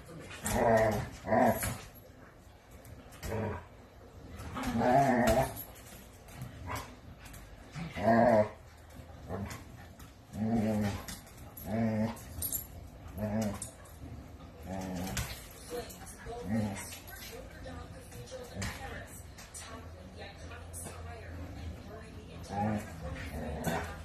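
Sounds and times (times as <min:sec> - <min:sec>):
dogs growling: 0:00.3 - 0:02.0, 0:03.0 - 0:17.2, 0:21.3 - 0:24.0.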